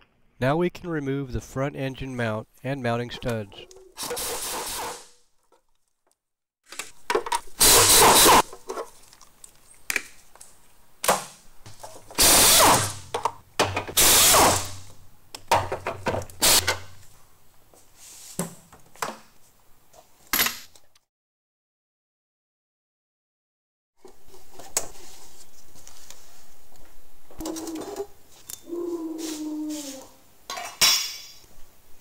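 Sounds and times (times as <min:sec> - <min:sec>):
ratchet bursts: 0:07.6 - 0:08.4, 0:12.2 - 0:13.0, 0:14.0 - 0:14.8.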